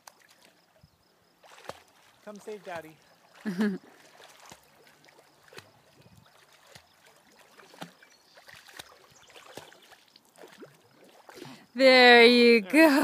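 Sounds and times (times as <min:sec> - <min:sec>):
dog paddling in water: 0:01.4 - 0:11.7.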